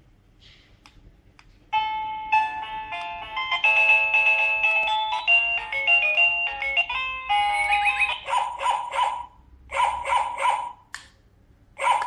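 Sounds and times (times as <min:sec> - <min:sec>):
doorbell chime melody: 0:01.8 - 0:08.2.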